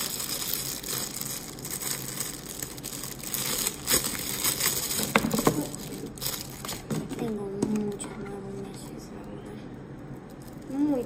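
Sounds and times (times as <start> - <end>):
plastic packaging crinkling: 0.0 - 7.4.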